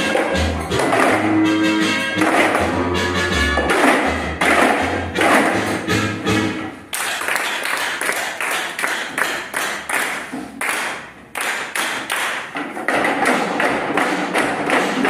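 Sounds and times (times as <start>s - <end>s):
plastic cups knocking on table: 0.1s - 1.3s, 2.2s - 2.8s, 3.6s - 5.9s, 11.8s - 15.0s
hands clapping: 6.9s - 12.6s.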